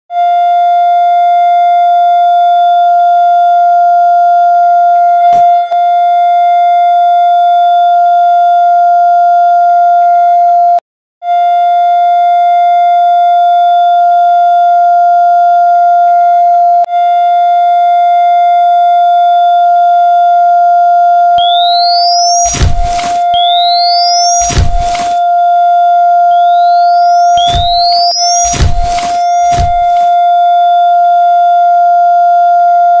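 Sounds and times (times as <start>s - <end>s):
loud burst of noise: 21.4s - 25.2s, 26.7s - 30.1s
defibrillator charging whine: 21.4s - 25.6s, 26.3s - 30.2s
monitor flatline alarm tone: 21.4s - 30.6s.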